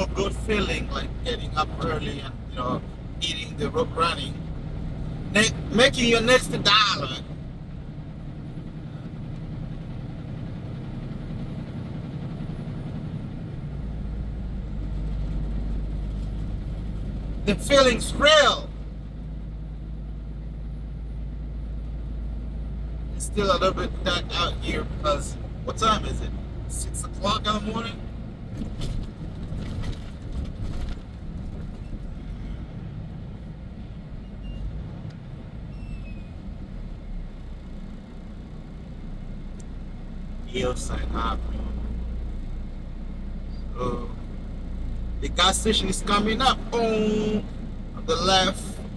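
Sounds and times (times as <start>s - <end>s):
road noise: 0.0s - 48.9s
truck engine: 0.0s - 48.9s
deep low rumble: 23.9s - 37.8s.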